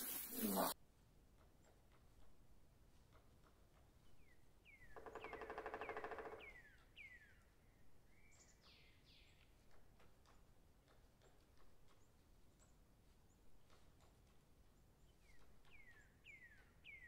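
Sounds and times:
whistled birdsong notes: 3.9s - 10.4s, 11.2s - 17.0s.

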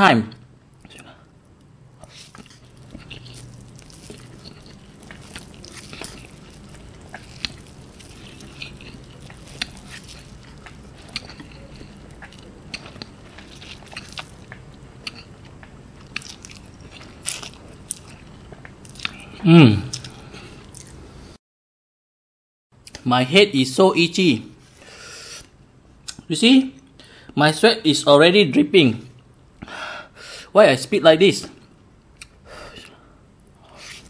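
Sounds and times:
person chewing and slurping noodles: 2.0s - 21.0s.

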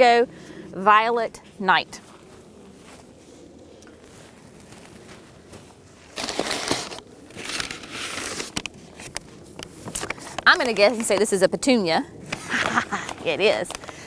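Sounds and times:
paper and cardboard crinkling: 6.1s - 9.2s.

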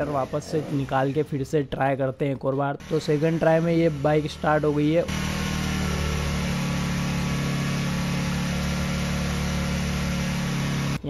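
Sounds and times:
motorcycle engine idling: 2.8s - 11.0s.

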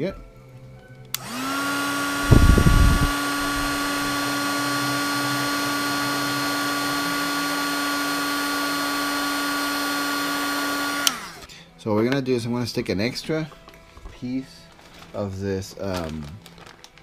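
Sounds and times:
heat gun running: 1.1s - 11.5s.

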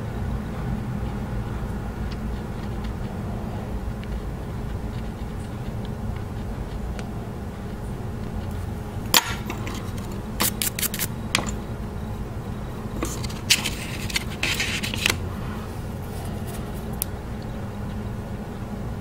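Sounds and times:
steady low hum: 0.0s - 19.0s
carving tool scraping wax: 9.3s - 11.6s, 13.0s - 15.2s.

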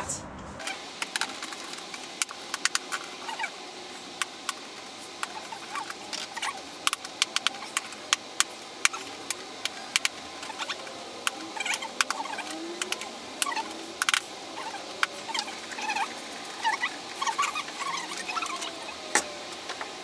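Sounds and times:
plastic caps clicking and cracking: 4.1s - 15.5s.

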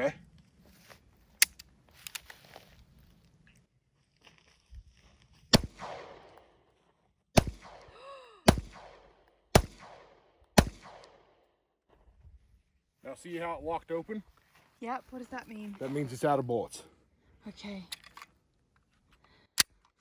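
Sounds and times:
pistol shots with echo: 5.5s - 6.6s, 7.4s - 7.9s, 8.5s - 11.4s.

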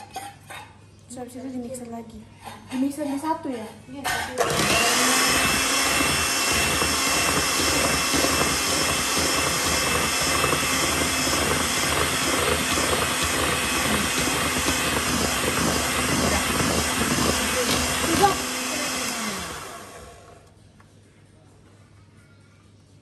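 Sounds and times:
electric hand mixer running: 4.4s - 20.5s.

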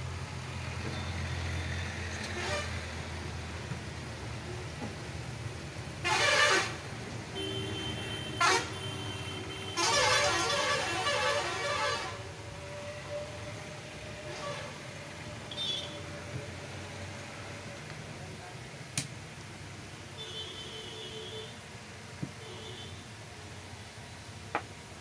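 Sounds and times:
street traffic: 0.0s - 25.0s
vehicle horn: 2.2s - 2.8s, 6.0s - 12.3s, 15.5s - 16.0s, 20.2s - 21.6s, 22.4s - 23.0s.

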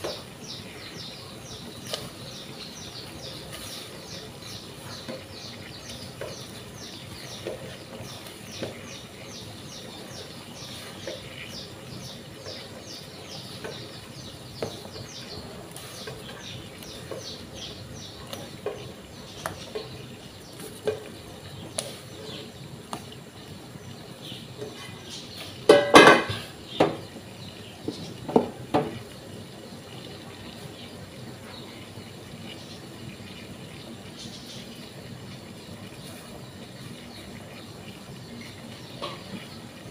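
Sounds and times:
boiling water: 0.0s - 39.9s
pan clattering on stove grate: 25.6s - 27.0s.

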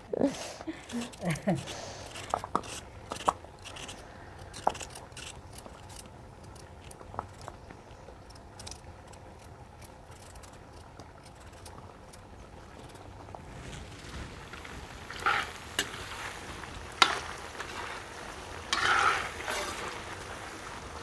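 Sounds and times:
knife cutting raw potatoes: 0.8s - 5.9s.

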